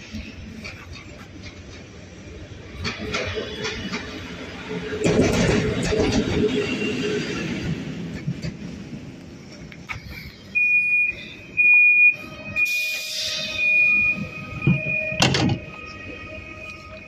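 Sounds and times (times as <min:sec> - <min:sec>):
high door warning beeps: 0:10.5 - 0:15.8.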